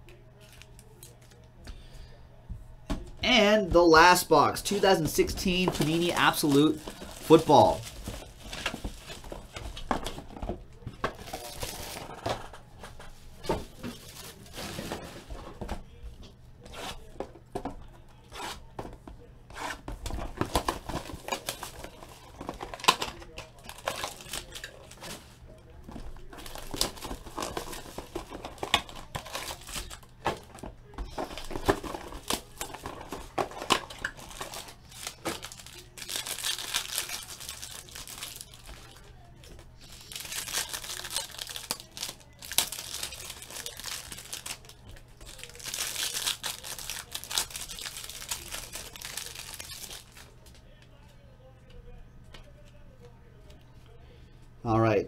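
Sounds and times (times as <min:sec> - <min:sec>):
plastic wrap crinkling and tearing: 0:04.6 - 0:15.3, 0:19.6 - 0:50.6.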